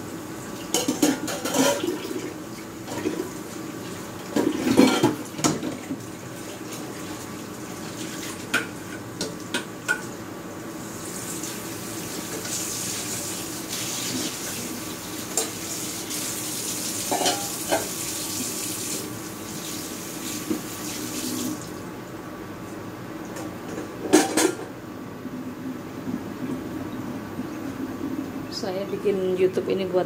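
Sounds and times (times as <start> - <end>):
dishware knocking and clinking: 17.2 - 17.9
steady hum: 19.0 - 30.0.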